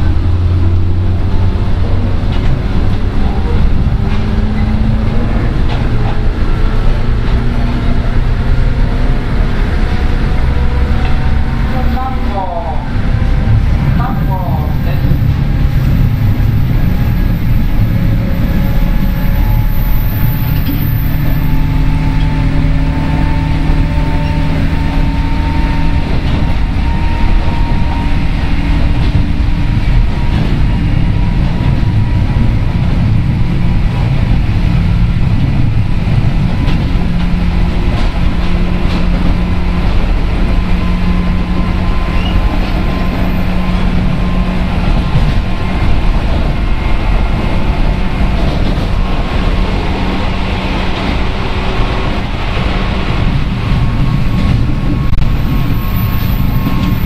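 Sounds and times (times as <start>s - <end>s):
train motor hum: 0.0s - 57.0s
wheels rumbling on rail: 0.0s - 57.0s
rising held tones: 15.4s - 28.2s.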